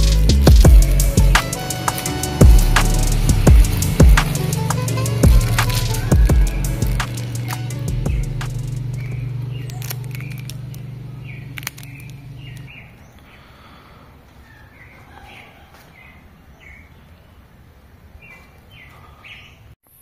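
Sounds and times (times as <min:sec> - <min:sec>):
background music with low note: 0:00.0 - 0:09.6
small birds chirping: 0:00.0 - 0:20.0
plastic wrap crinkling: 0:08.4 - 0:12.8.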